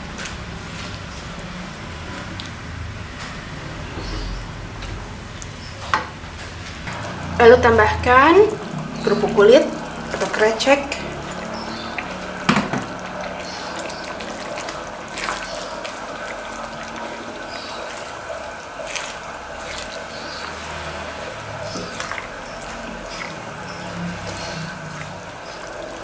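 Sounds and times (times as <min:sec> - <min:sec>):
sauce bubbling in a wok: 0:08.5 - 0:26.0.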